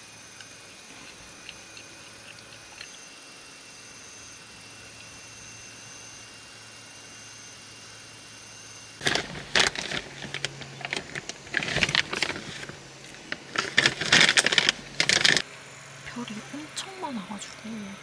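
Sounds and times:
plastic packaging crinkling: 9.0 - 15.4.

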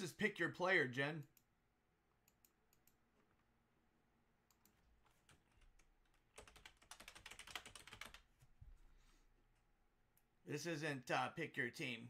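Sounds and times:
typing on keyboard: 4.5 - 8.3.

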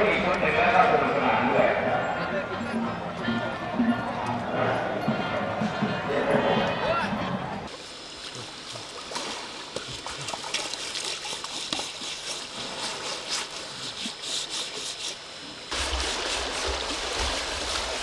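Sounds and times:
water splashing and trickling: 7.7 - 18.0.

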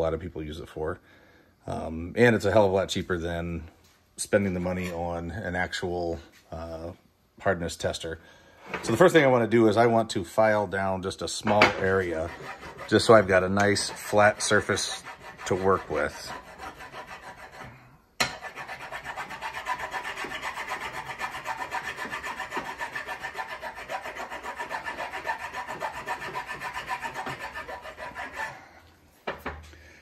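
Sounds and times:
file rasping on lead: 11.8 - 28.6.

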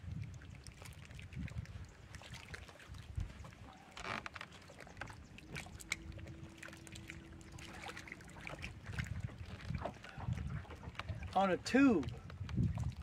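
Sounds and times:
wind rumble: 5.4 - 11.3, 12.0 - 13.0.

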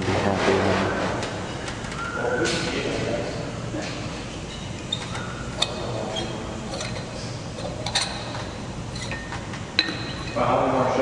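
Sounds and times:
glass bulbs clicking and clinking: 4.3 - 10.4.

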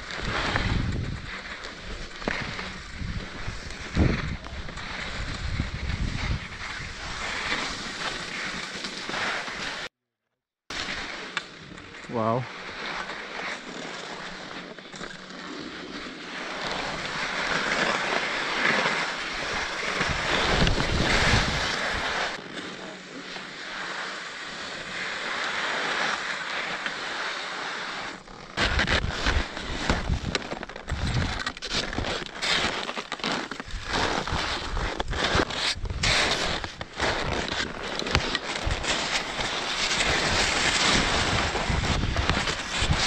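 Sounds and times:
skis scraping on snow: 0.0 - 9.9, 10.7 - 43.0
wind buffeting microphone: 20.0 - 22.1.

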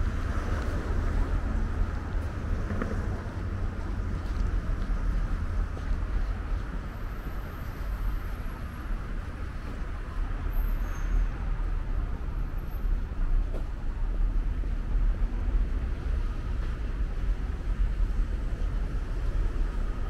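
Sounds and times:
street traffic rumble: 0.0 - 20.0.

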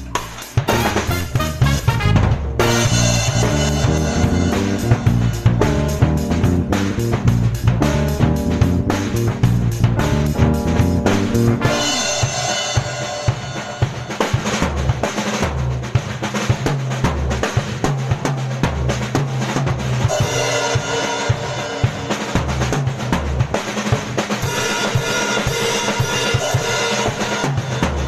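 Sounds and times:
drum kit solo: 0.0 - 28.0
cymbal crashes: 0.7 - 6.0, 11.6 - 14.7
low bass line: 0.7 - 12.2
keyboard chords: 0.7 - 13.2.

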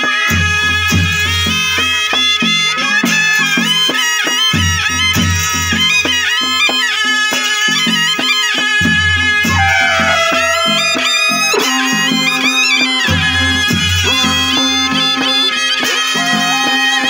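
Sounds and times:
reedy shawm melody: 0.2 - 17.0
drum beat: 8.8 - 15.4.

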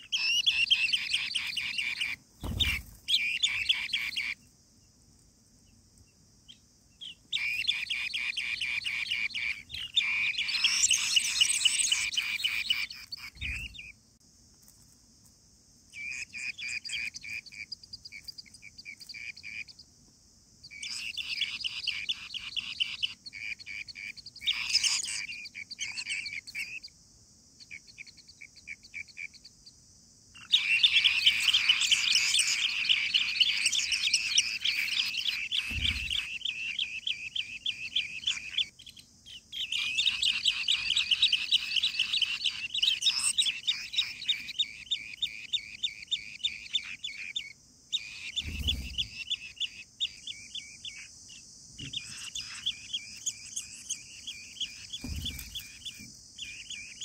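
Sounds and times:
birds trilling chirps: 0.0 - 14.0, 15.9 - 57.0
low thumps: 55.0 - 55.7.

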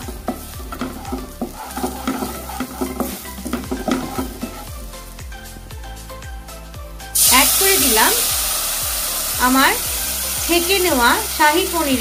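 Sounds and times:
spoon scraping frying pan: 0.0 - 5.0
butter sizzling: 0.0 - 12.0.

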